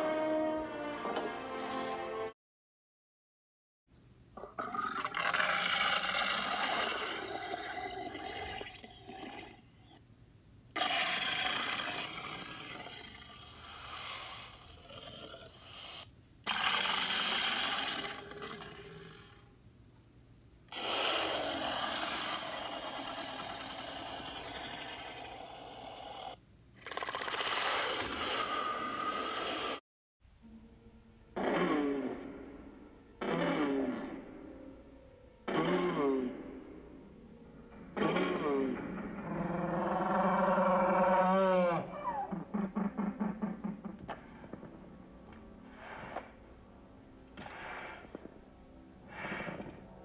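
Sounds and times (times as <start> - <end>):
dinosaur roars: 4.6 - 8.6, 10.8 - 19.5, 20.7 - 29.4, 38.0 - 42.5.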